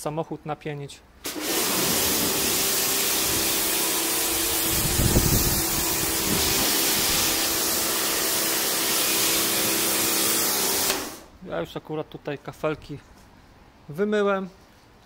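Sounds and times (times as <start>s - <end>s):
pressure washer spraying: 1.2s - 11.3s.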